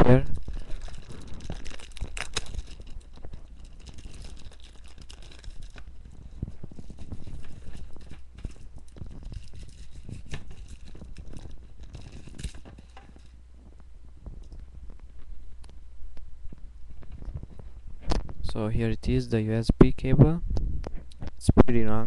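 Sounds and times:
packaging crinkling: 0.1s - 15.4s.

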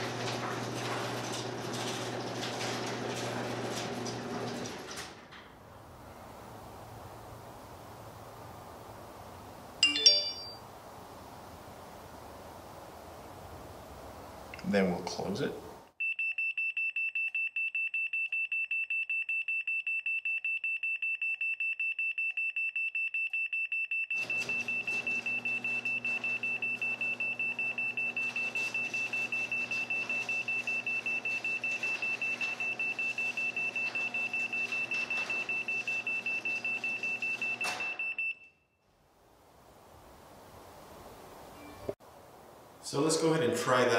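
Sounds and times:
garage door motor humming: 0.0s - 8.6s, 24.2s - 38.1s.

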